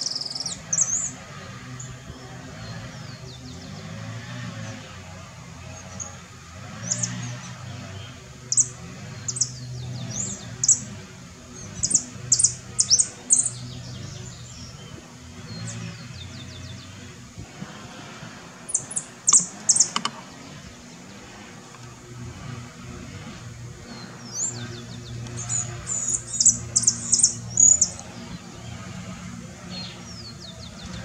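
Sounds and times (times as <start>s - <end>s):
finch singing high chips: 11.6s - 14.8s, 24.2s - 28.6s.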